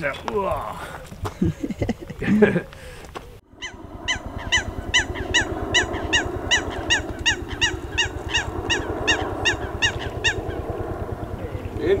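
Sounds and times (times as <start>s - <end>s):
bird calling short falling notes: 3.2s - 10.8s.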